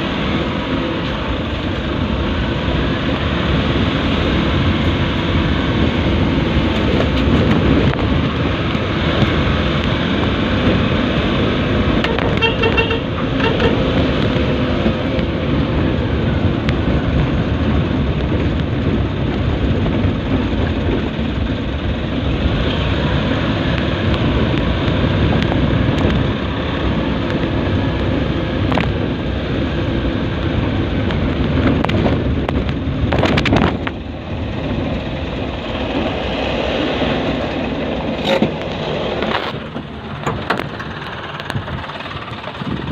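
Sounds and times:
vehicle engine and road noise: 0:00.0 - 0:42.9
short horn toot: 0:12.0 - 0:13.8.

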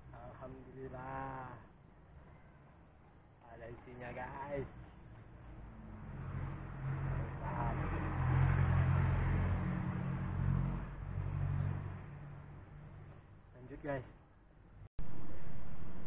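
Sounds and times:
passing motor engine hum: 0:04.7 - 0:13.3.

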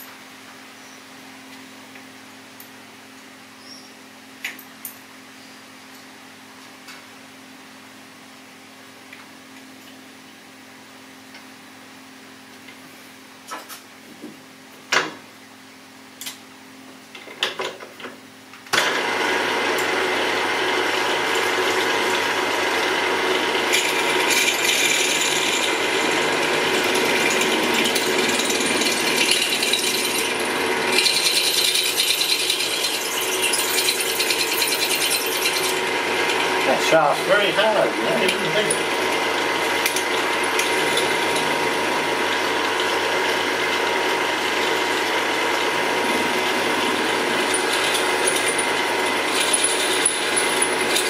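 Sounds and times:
drill press drilling metal: 0:18.7 - 0:51.0.

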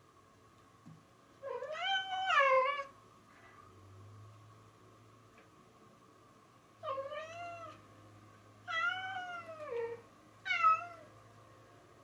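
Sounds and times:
cat meowing: 0:01.4 - 0:02.9, 0:06.8 - 0:07.8, 0:08.7 - 0:11.1.

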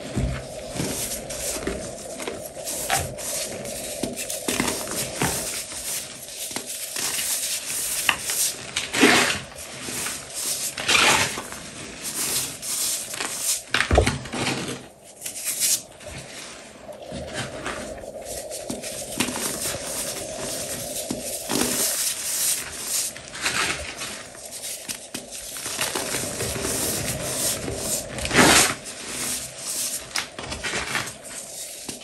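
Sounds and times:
chalk crunching: 0:00.1 - 0:13.7, 0:18.2 - 0:30.2.

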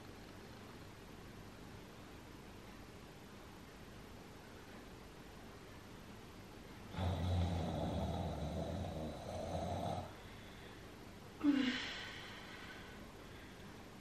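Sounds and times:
woman groaning with effort: 0:11.4 - 0:12.0
woman short vocal sound: 0:11.4 - 0:12.0.

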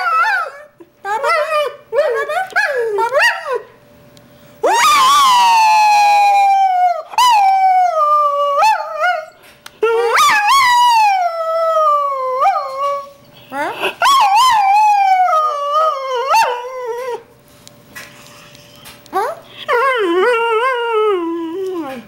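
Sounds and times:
dog howling: 0:00.0 - 0:03.7, 0:04.6 - 0:13.1, 0:14.0 - 0:17.3
dog yelps: 0:04.6 - 0:06.0.

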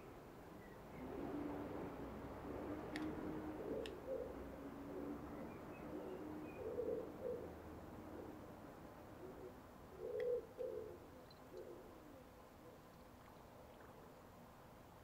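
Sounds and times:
pigeon cooing: 0:03.4 - 0:08.4, 0:09.1 - 0:12.8.

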